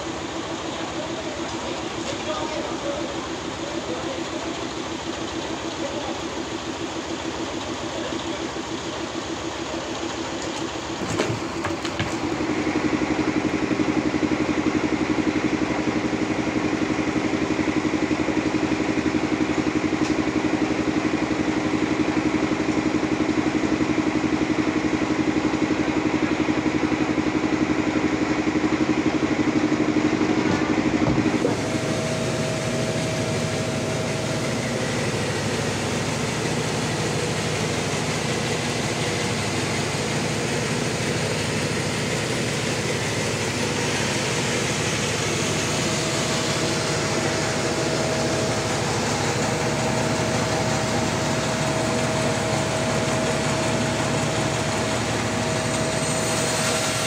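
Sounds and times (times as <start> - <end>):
sawmill machinery droning: 0.0 - 57.0.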